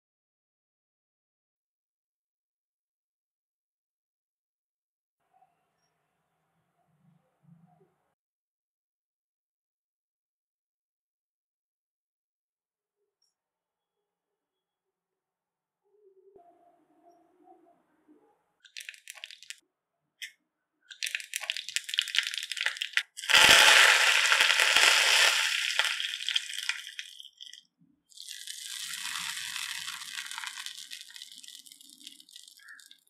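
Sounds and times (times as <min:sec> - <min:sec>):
seeds popping in hot oil: 0:18.7 - 0:19.6, 0:20.8 - 0:33.0
leaves sizzling in oil: 0:20.9 - 0:27.6, 0:28.2 - 0:33.0.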